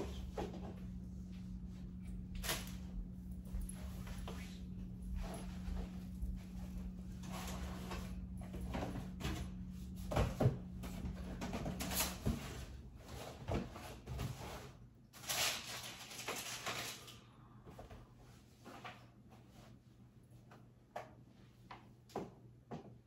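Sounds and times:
low hum: 0.0s - 12.1s.

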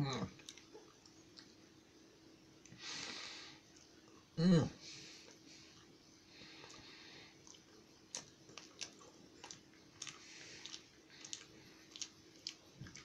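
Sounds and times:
faint chewing: 0.3s - 1.7s, 5.1s - 13.0s.

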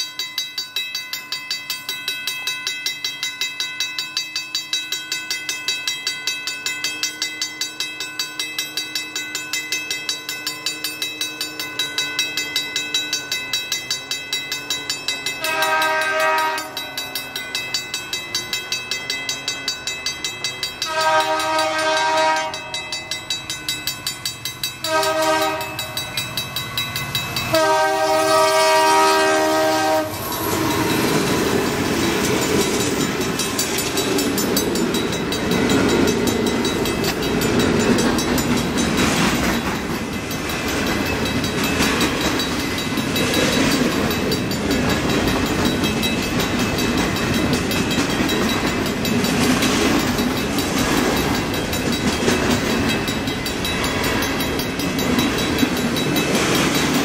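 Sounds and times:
crossing bell ringing: 0.0s - 57.0s
train passing rushing noise: 9.8s - 57.0s
wheels clacking over rail joints: 13.4s - 57.0s
train air horn blasts: 15.4s - 16.8s, 20.8s - 22.8s, 24.8s - 25.9s, 27.5s - 31.0s.

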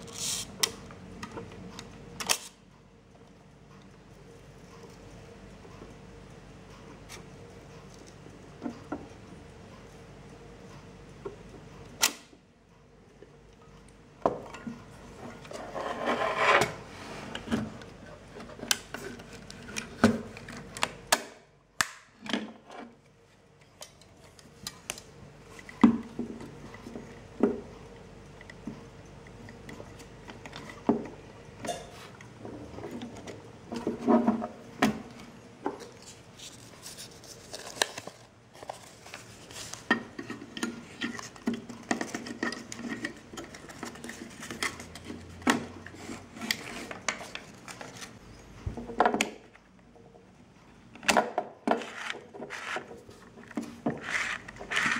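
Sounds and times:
film and paper handled: 35.8s - 48.2s.

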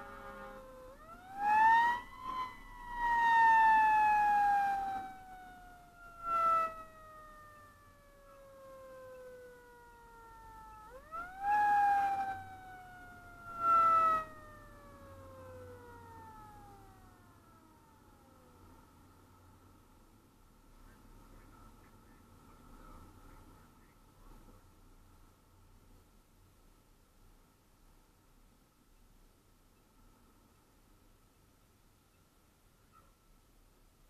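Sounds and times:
short loud horn blasts: 0.0s - 0.7s
mechanical siren wailing: 0.0s - 18.8s.

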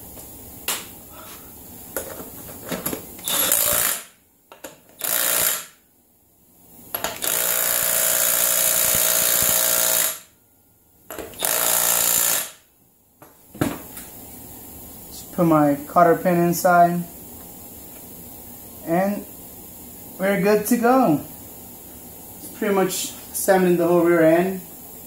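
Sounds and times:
impact wrench hammering: 3.2s - 5.8s, 7.0s - 10.3s, 11.1s - 12.6s.

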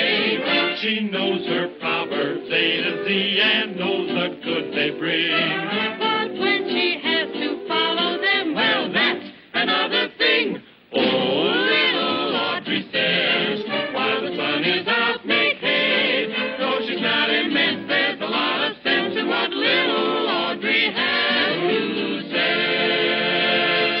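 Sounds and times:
orchestra playing: 0.0s - 8.1s
choir singing: 0.0s - 24.0s.

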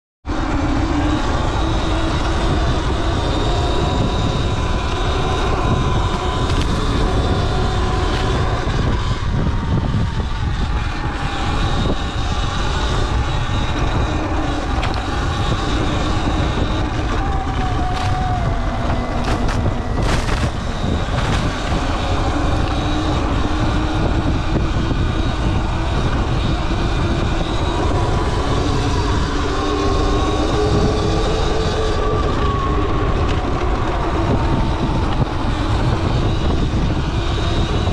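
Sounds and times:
heavy low rumble: 0.2s - 37.9s
electric motor whine: 0.3s - 37.9s.

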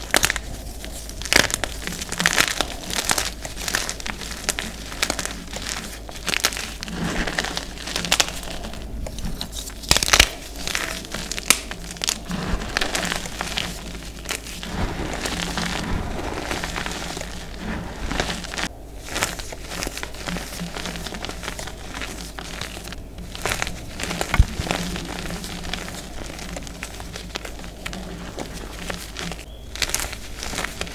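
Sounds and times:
hands crushing chalk: 0.0s - 30.9s.

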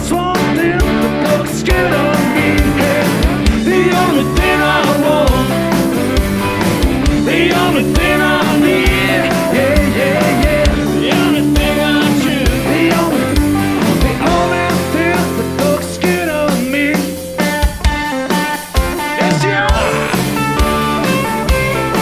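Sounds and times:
rock music with singing: 0.0s - 22.0s.

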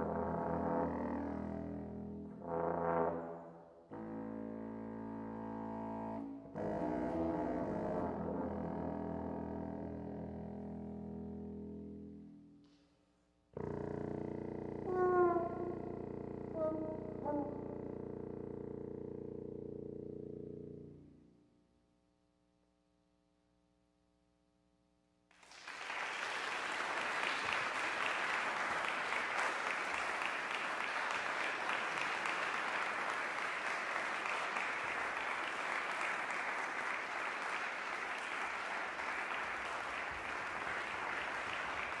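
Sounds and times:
audience applauding: 25.4s - 42.0s.

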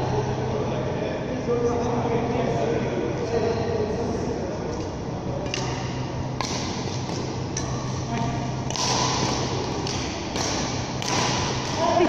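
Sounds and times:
ventilation hum: 0.0s - 12.0s
racket hitting shuttlecock: 5.5s - 12.0s.

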